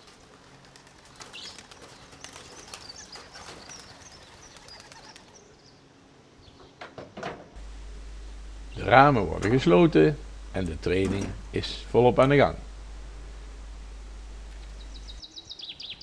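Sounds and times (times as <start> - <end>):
wing flapping: 0.0 - 5.5
pigeons cooing: 0.0 - 5.8
high bird chirps: 14.6 - 16.0.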